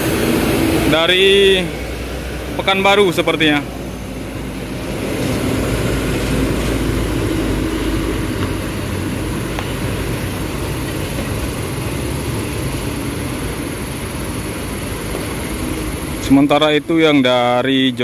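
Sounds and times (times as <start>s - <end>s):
diesel bus and trucks running: 0.0s - 18.0s.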